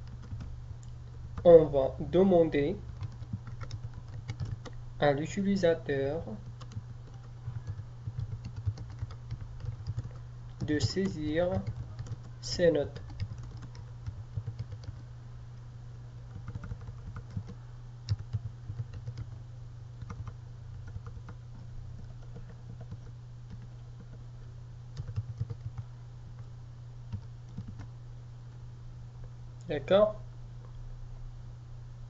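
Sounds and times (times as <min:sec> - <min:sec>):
typing on computer keyboard: 0:00.0 - 0:00.5, 0:02.8 - 0:04.8, 0:06.3 - 0:15.1, 0:16.2 - 0:19.4, 0:20.0 - 0:24.2, 0:24.9 - 0:26.5, 0:27.1 - 0:27.9
low electrical hum: 0:00.0 - 0:32.0.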